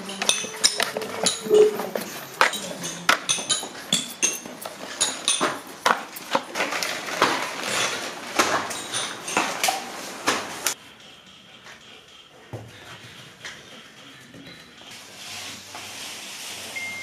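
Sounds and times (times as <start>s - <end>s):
cardboard tubes knocking and clinking: 0.0s - 10.6s.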